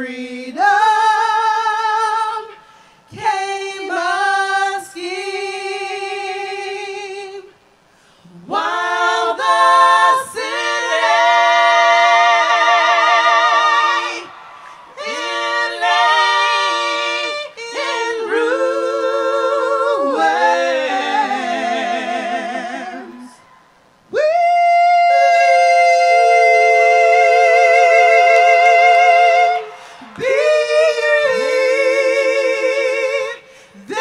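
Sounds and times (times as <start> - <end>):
a cappella voices singing chords: 0.0 - 34.0.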